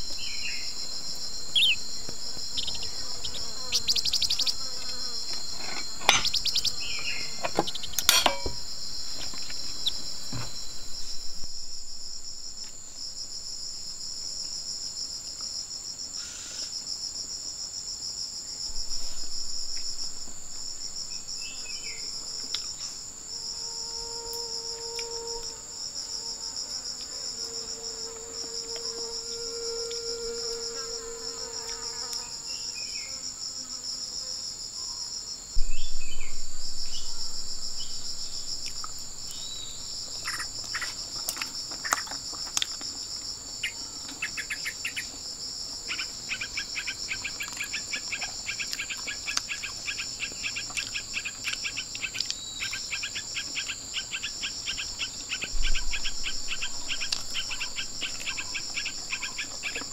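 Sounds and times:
fast pulsing insect trill: 0.0s - 59.9s
insects chirping: 0.0s - 59.9s
short bird chirps: 1.6s - 1.8s
dull low thump with rumble: 10.1s - 12.9s, 35.6s - 40.2s, 55.6s - 58.0s.

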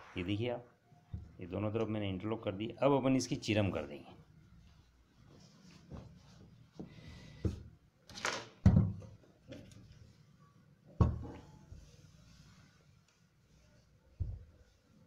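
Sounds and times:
fabric rustle: 4.5s - 6.8s, 11.5s - 15.0s.

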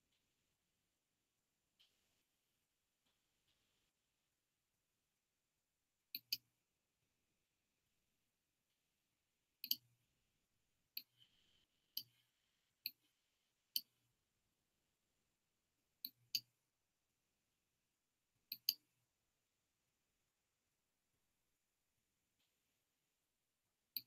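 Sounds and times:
computer mouse clicking: 6.2s - 6.5s, 9.6s - 9.9s, 18.5s - 18.8s.

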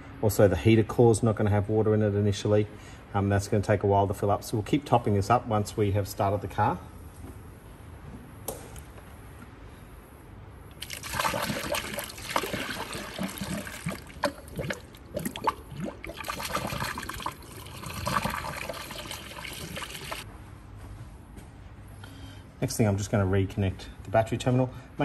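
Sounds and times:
water pouring into funnel: 10.7s - 20.2s.

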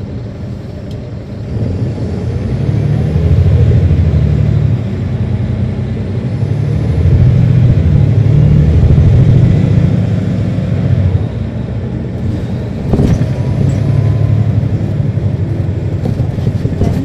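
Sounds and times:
bus diesel engine running: 0.0s - 17.0s.

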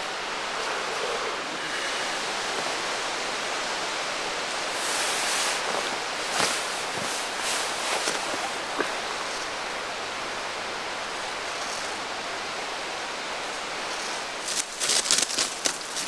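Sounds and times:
outdoor rushing hiss: 0.0s - 16.0s
footsteps crunching dry leaves: 4.7s - 9.4s, 14.4s - 16.0s.

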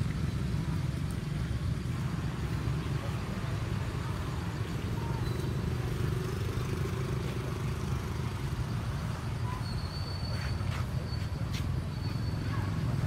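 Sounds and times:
faint high whistle: 9.4s - 12.7s.

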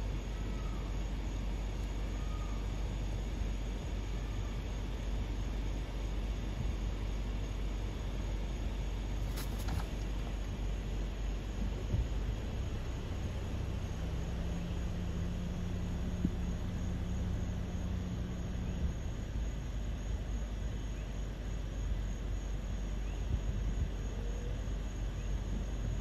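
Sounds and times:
low engine hum: 0.0s - 26.0s
deep droning tone: 11.2s - 21.0s.

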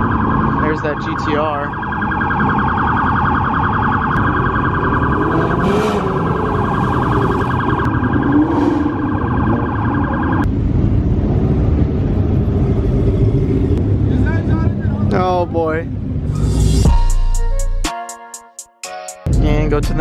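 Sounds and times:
pulsing electronic siren: 0.0s - 10.5s
car engines rumbling: 0.0s - 16.7s
car engine revving: 4.2s - 9.4s.

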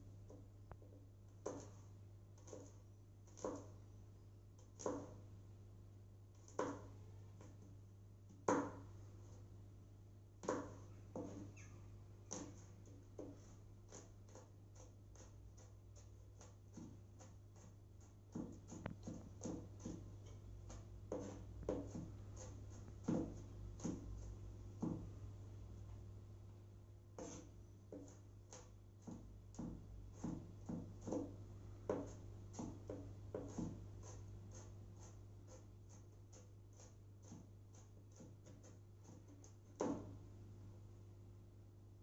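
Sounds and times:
knife chopping on wooden board: 3.4s - 3.7s, 4.8s - 5.2s, 6.5s - 6.9s, 8.5s - 8.9s, 10.4s - 11.5s, 12.3s - 25.1s, 27.2s - 40.2s.

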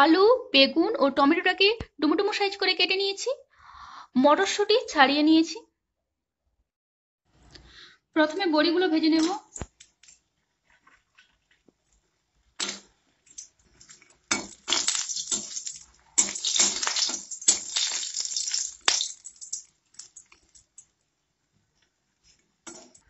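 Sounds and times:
food frying in oil: 12.6s - 21.0s.

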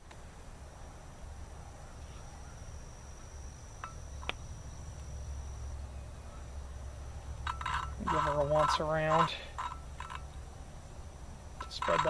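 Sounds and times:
low outdoor rumble: 0.0s - 12.0s
insect trilling: 2.1s - 10.4s, 11.5s - 12.0s.

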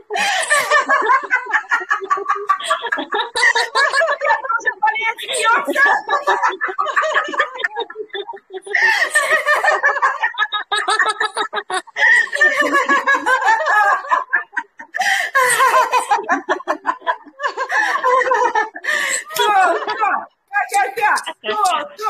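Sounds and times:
women laughing heartily: 0.0s - 22.0s.

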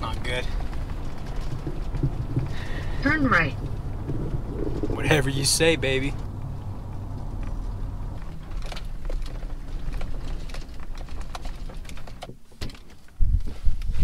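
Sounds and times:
gusty wind on microphone: 0.0s - 11.0s
truck rumble on gravel road: 0.0s - 13.1s
clicks and rattles in cab: 0.0s - 13.2s.

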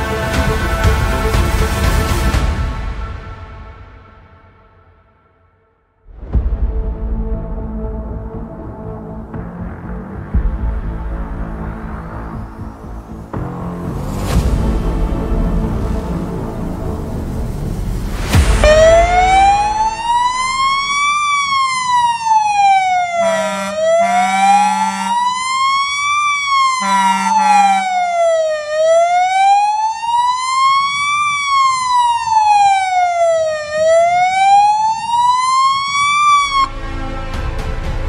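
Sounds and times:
horn blasts: 18.4s - 20.7s, 23.0s - 25.4s, 26.6s - 28.4s
fire truck siren wailing: 18.5s - 36.8s.

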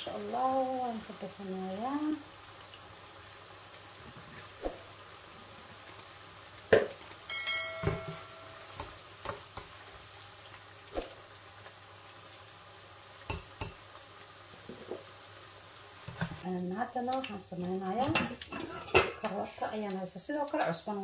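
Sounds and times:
brief ringing tone: 7.3s - 8.8s.

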